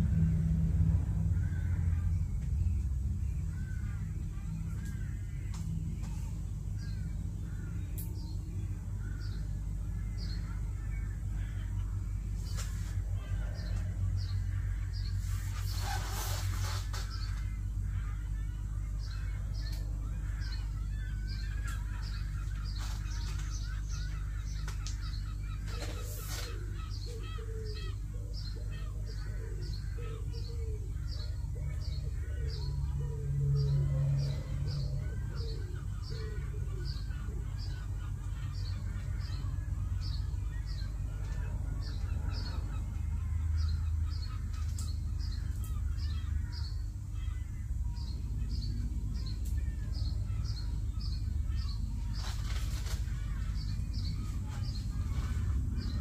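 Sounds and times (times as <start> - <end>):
birds chirping: 0.0 - 56.0
steady low hum: 0.0 - 56.0.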